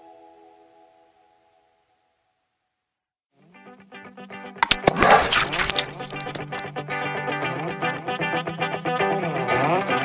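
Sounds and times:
sharp percussive hits: 4.6s - 6.6s.

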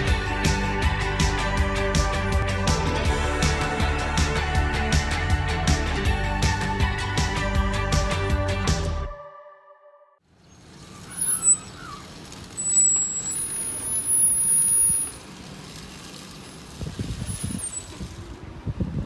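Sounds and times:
air brake squeal and hiss: 11.1s - 12.0s, 12.6s - 15.1s.

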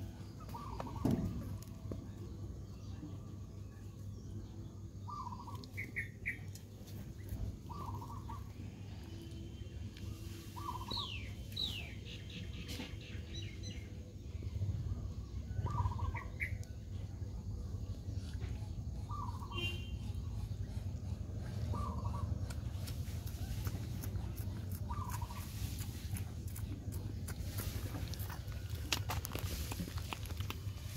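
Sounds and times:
birds chirping: 0.0s - 30.9s
steady low rumble: 13.7s - 30.9s.

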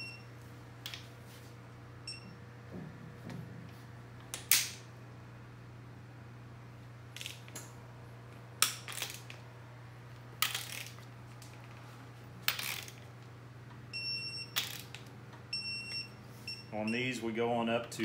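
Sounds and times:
torque wrench beeping: 14.0s - 14.9s.

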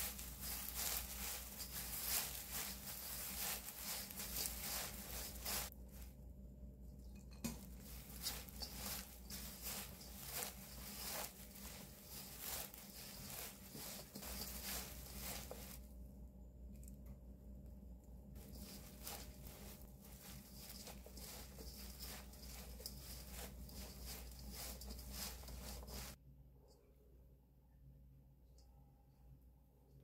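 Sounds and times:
dried seaweed crackling: 0.0s - 6.0s, 7.5s - 15.8s, 18.4s - 26.2s.

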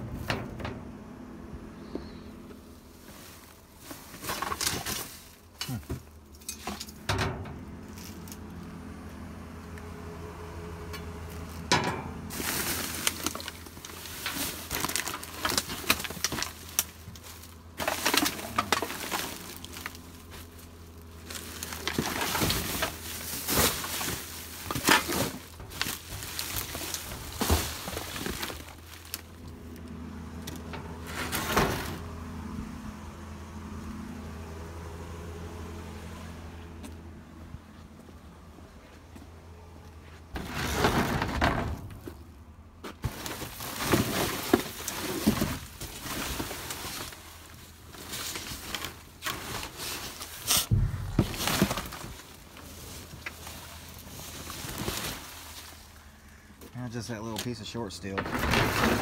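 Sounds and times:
plastic bags crinkling: 12.3s - 29.4s
steady low hum: 50.6s - 54.1s.

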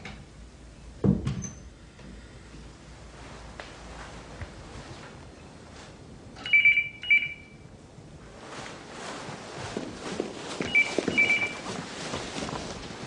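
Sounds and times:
soft footsteps: 2.6s - 6.1s, 8.1s - 13.0s
electronic telephone ringing: 6.5s - 7.6s.

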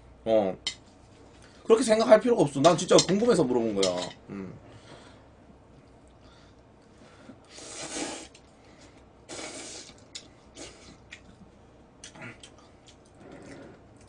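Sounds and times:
person slurping noodles: 7.5s - 8.4s, 9.3s - 11.0s.

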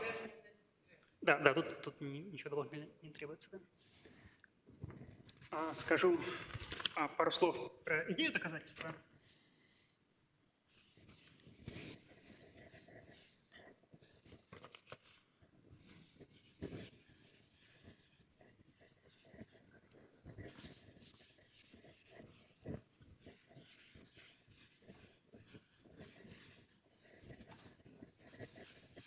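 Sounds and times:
writing on a board: 10.7s - 14.6s, 15.6s - 29.0s.

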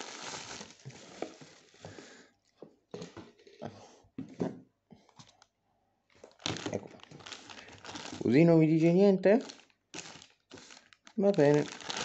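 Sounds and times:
plastic wrapping crinkling: 0.0s - 1.8s, 6.2s - 8.5s, 9.3s - 12.0s.

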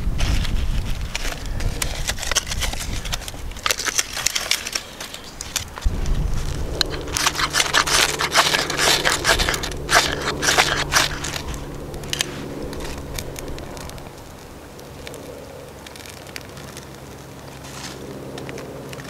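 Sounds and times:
knife scraping ferrocerium rod: 6.7s - 13.5s.

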